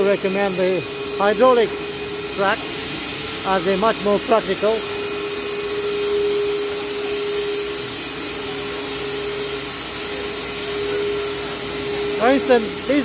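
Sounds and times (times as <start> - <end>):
band sawmill running: 0.0 - 13.0.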